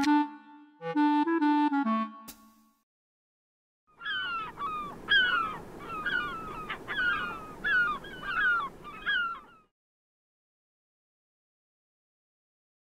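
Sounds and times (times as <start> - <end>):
gulls squawking: 4.0 - 9.7.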